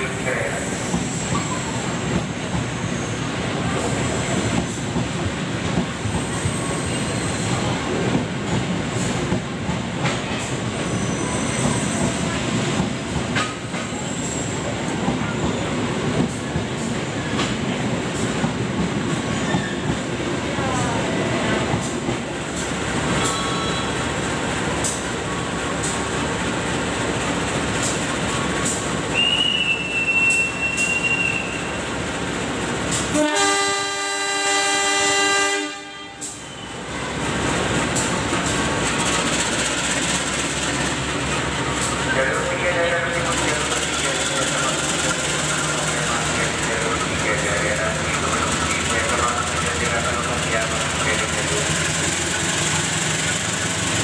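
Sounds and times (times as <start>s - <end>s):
train rolling rumble: 0.0s - 54.0s
wheel squeal: 10.8s - 12.1s, 19.4s - 19.9s.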